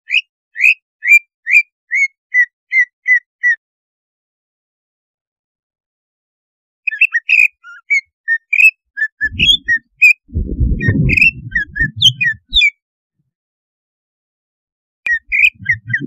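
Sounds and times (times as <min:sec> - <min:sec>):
bird singing whistled chirps: 0:00.1 - 0:03.6, 0:06.9 - 0:12.8, 0:15.1 - 0:16.0
low rumble: 0:09.2 - 0:12.6, 0:15.3 - 0:16.0.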